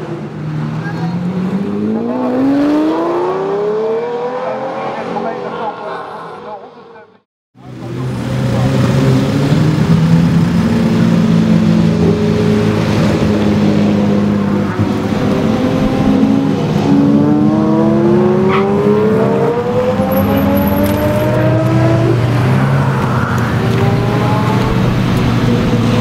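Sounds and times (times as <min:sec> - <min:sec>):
car engine accelerating: 0:07.6 - 0:26.0.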